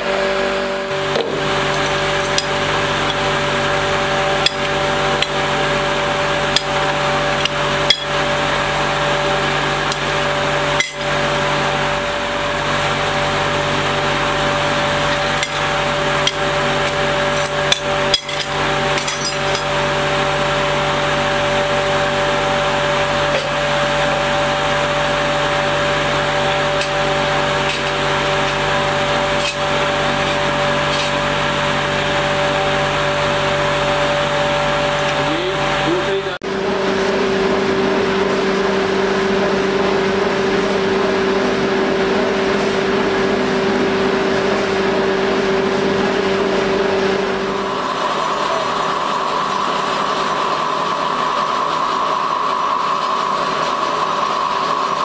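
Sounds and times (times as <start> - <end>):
extruder motor hum: 0.0 - 55.0
metal scraper knocking and clinking: 7.9 - 8.1, 17.4 - 19.7.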